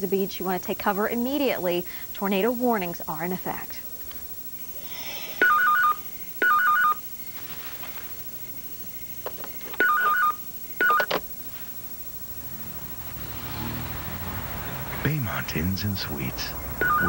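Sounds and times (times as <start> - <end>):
two-pitch electronic beeps: 5.4 - 7.0, 16.8 - 17.0.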